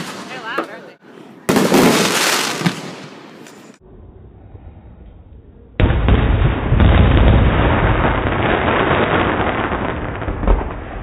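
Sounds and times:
firework bang: 1.5 - 3.2, 5.8 - 11.0
firework crackling and rumbling: 5.8 - 11.0.

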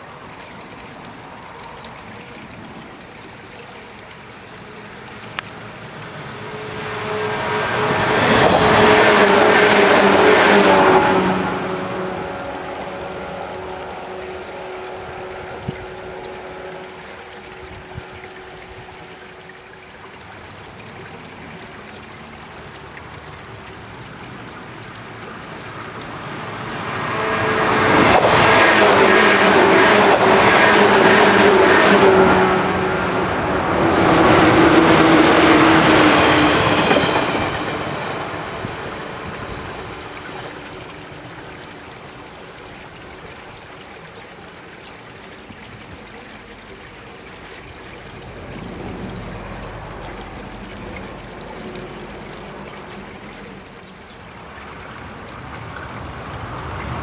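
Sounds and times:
trickling water: 0.0 - 57.0
train passing close by: 4.0 - 20.8, 24.6 - 43.6, 47.8 - 53.7, 55.4 - 57.0
humming tone: 5.2 - 20.0.

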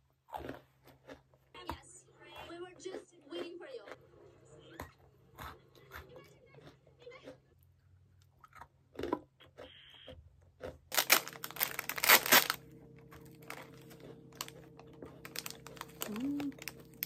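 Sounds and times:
plastic bag crinkling and tearing: 10.9 - 12.6, 13.4 - 17.0.

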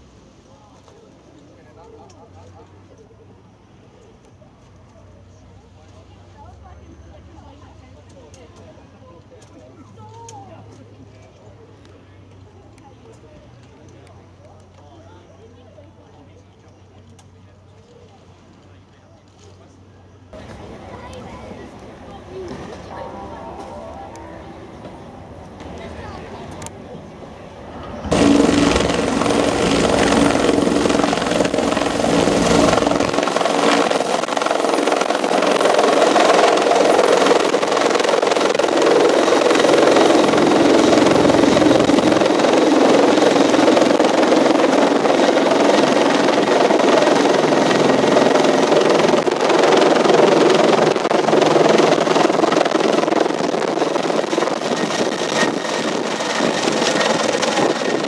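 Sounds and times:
helicopter rotor and engines: 20.3 - 58.0.

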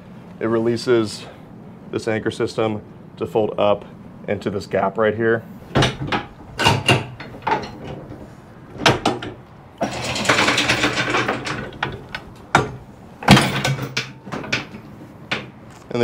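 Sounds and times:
metal anchor clanks and knocks: 5.7 - 8.2, 8.8 - 15.6
rattling scrape: 9.8 - 12.1.

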